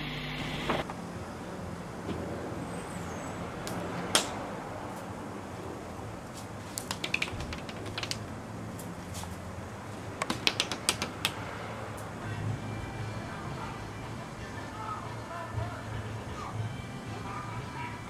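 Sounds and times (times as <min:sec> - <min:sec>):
sharp clicks: 0:06.8 - 0:08.2, 0:10.2 - 0:11.4.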